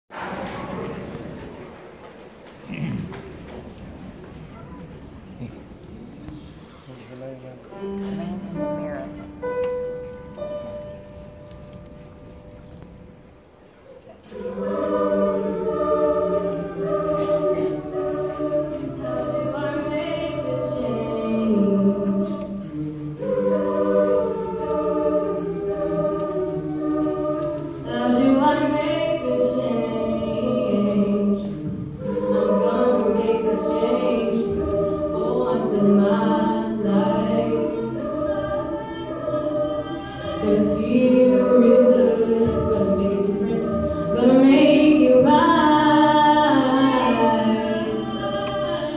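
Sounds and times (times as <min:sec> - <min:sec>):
mixed choir singing: 0:14.2 - 0:48.9.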